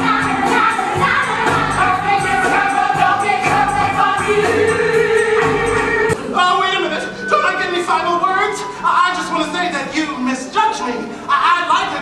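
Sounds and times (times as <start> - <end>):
choir singing long held notes: 0.0 - 9.0
instrumental backing music: 0.0 - 12.0.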